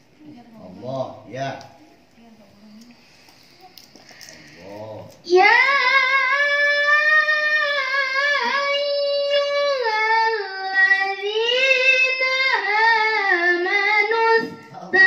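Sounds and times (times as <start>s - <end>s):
girl reciting melodically: 5.1s - 15.0s.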